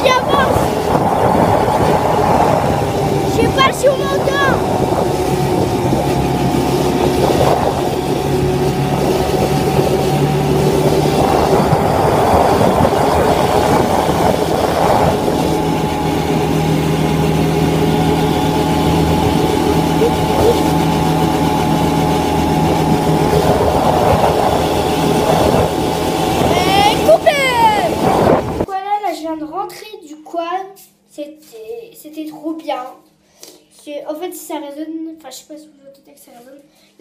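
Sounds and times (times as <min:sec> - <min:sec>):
quad bike engine running: 0:00.0 - 0:28.6.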